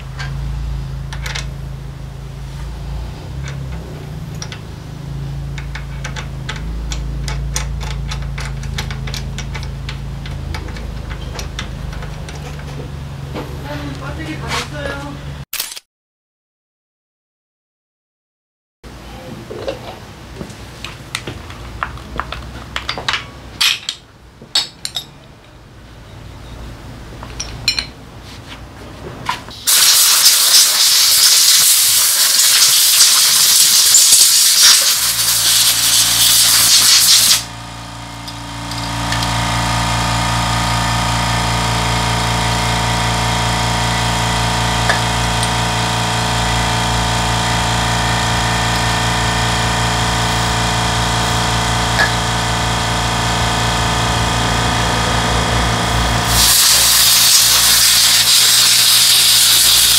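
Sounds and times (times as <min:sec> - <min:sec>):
metal brake parts clicking: 0:05.5 - 0:12.8
aerosol spray can hissing: 0:29.7 - 0:37.5, 0:56.3 - 0:59.9
machine hum: 0:33.3 - 0:59.9.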